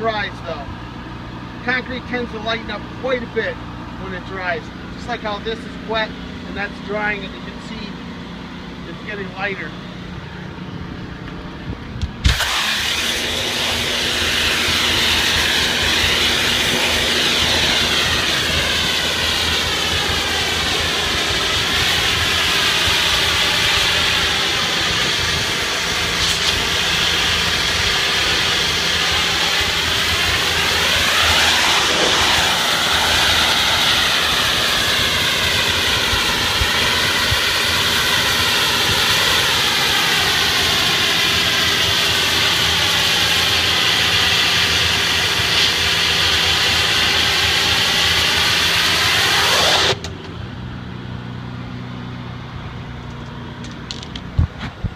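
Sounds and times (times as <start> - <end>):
engine humming: 0.0 - 54.9
pressure washer jet hissing: 12.2 - 50.1.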